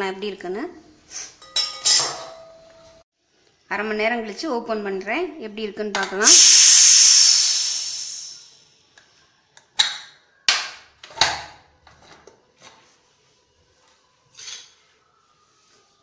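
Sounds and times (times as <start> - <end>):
pressure cooker steam hiss: 6.2 - 8.7.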